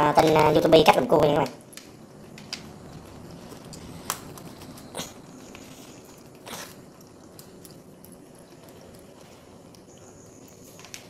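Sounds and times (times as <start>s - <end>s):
crab shell cracking: 3.5s - 11.0s.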